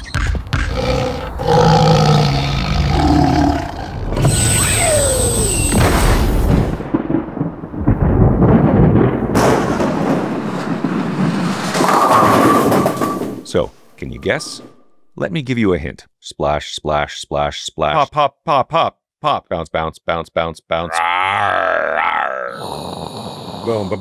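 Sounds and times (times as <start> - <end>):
roars: 0.6 - 5.4, 20.9 - 24.0
deep rumble with booms: 3.6 - 11.8
spaceship thruster whistle: 4.2 - 6.2.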